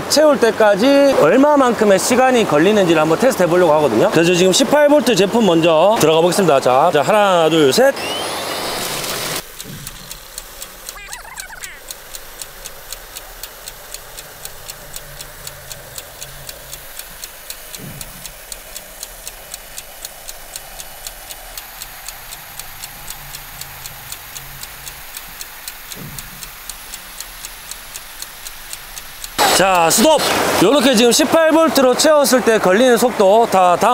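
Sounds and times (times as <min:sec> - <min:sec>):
fast clock ticking: 0:09.3 - 0:33.9.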